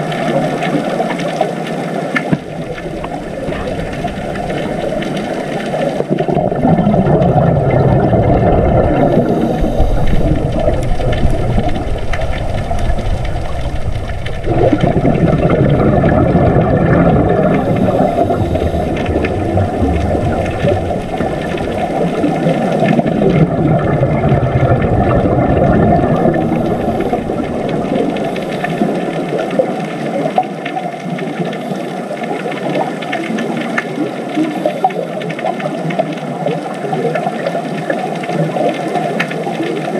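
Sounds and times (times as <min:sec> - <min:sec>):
low rumbling water noise: 0:00.0 - 0:39.9
slow sliding tones: 0:02.4 - 0:29.8.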